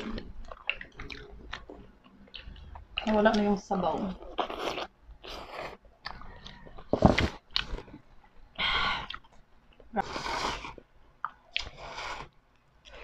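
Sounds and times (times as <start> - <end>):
slurping and chewing noodles: 4.2 - 7.9, 10.0 - 13.0.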